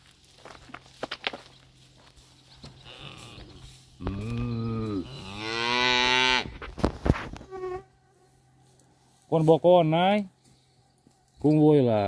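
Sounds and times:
cow mooing: 4.0 - 6.5.

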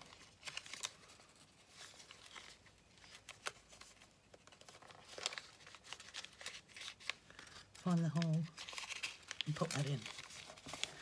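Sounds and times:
paper crackle: 0.0 - 11.0
paper rustling and crinkling: 0.0 - 11.0.

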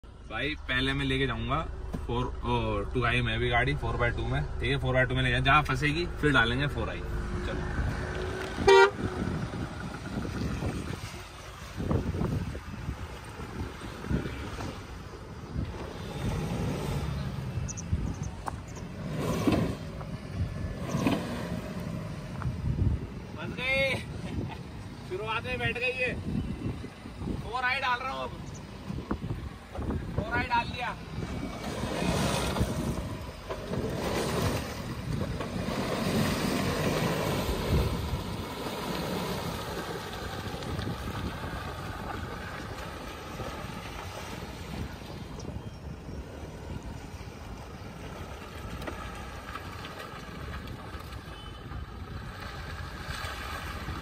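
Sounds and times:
vehicle engine rumbling in mud: 0.0 - 54.0
wind buffeting microphone: 1.2 - 54.0
tyres splashing: 27.8 - 54.0.

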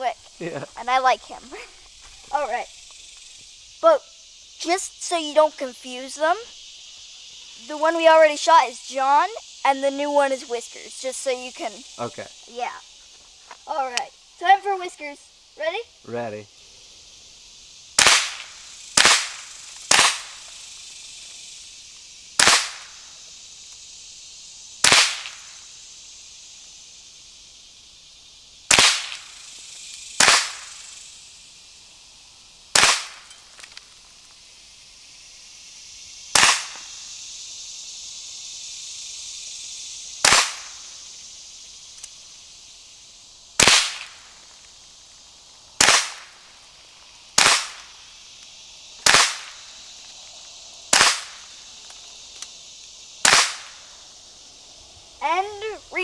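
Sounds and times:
rifle shots: 18.0 - 20.3, 22.4 - 22.8, 24.8 - 25.4, 30.2 - 30.7, 32.8 - 33.2, 36.4 - 36.8, 40.2 - 40.7, 43.6 - 44.1, 47.4 - 47.8, 49.0 - 49.5, 50.9 - 51.3, 53.2 - 53.6.

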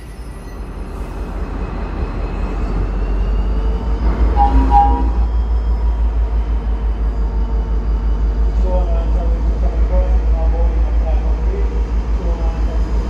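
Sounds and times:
diesel locomotive engine running: 0.0 - 13.0
short double tone: 4.0 - 6.0.

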